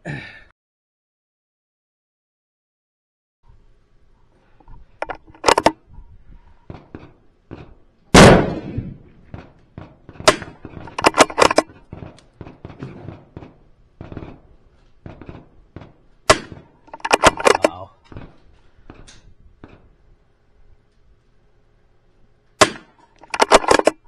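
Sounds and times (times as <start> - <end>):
rifle shot: 8.1 - 9.1, 10.1 - 11.6, 16.3 - 17.6, 22.6 - 23.9
rifle action clicks: 10.3 - 12.3, 16.3 - 17.7, 22.6 - 24.0.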